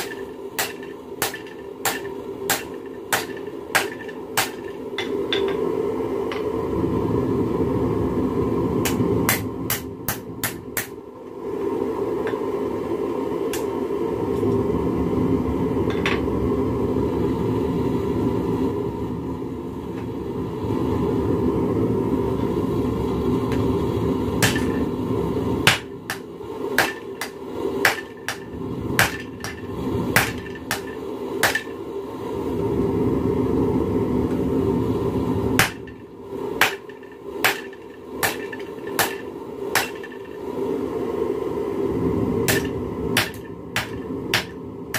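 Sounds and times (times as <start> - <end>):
hammer striking metal on anvil: 0.0 - 5.7, 24.4 - 24.9, 25.6 - 31.8, 35.6 - 36.0, 36.6 - 40.3, 42.5 - 44.6.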